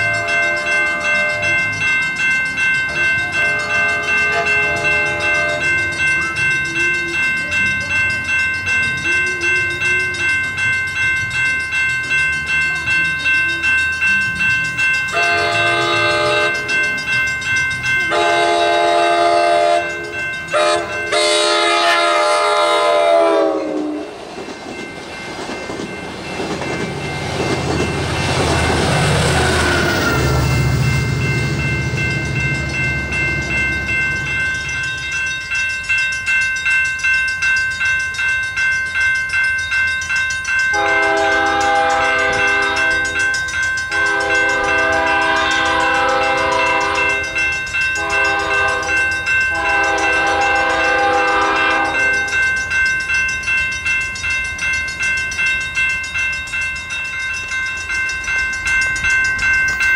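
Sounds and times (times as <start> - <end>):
crossing warning bell ringing: 0.0 - 59.9
train horn blasts: 3.4 - 5.7, 15.2 - 16.6, 18.1 - 24.2, 40.7 - 43.1, 43.9 - 47.3, 48.0 - 52.1
train wheels rumbling over rails: 22.2 - 36.8.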